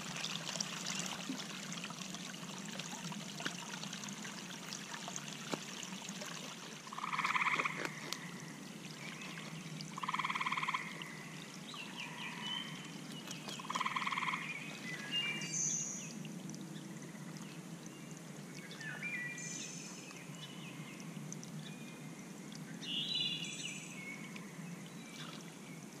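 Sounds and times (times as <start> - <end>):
water trickling: 0.0 - 26.0
frog pulsed trills: 6.9 - 7.8, 10.0 - 11.3, 13.7 - 14.5.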